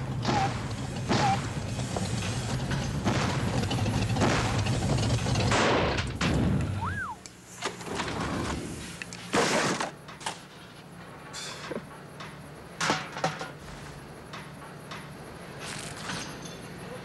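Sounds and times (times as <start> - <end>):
heavy low rumble: 0.0 - 7.2
short rising and falling whistle: 6.8 - 7.3.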